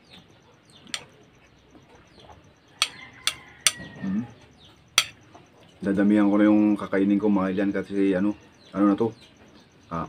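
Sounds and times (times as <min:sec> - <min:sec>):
ceramic bowl clinks: 0:02.8 - 0:03.9, 0:05.0 - 0:05.2.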